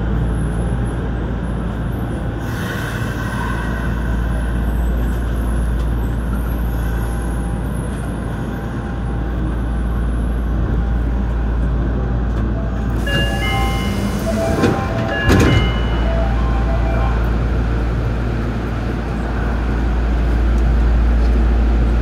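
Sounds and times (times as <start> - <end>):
train low hum: 0.0 - 22.0
chime tones: 13.1 - 17.3.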